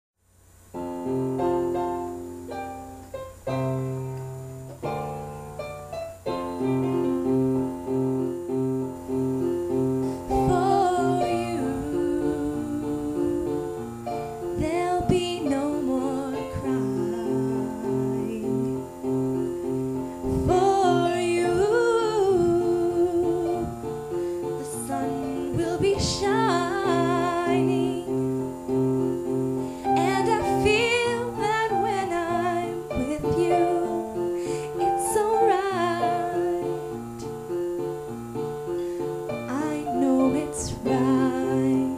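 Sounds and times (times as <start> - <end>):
piano chords: 0.5 - 41.9
woman singing: 10.0 - 19.5, 20.2 - 28.9, 29.8 - 37.3, 39.3 - 41.9.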